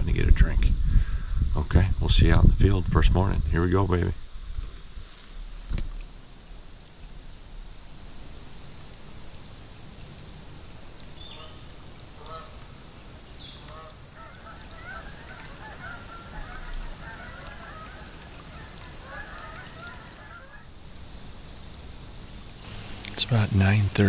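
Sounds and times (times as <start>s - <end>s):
geese honking: 10.8s - 20.7s, 22.6s - 24.0s.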